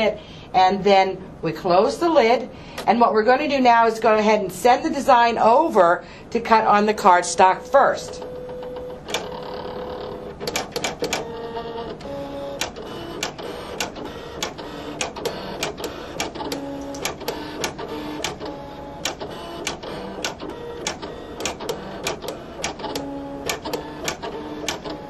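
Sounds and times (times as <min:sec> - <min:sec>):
cutting machine motors whining: 0:07.6 - 0:25.0
sharp clicks: 0:12.6 - 0:25.0.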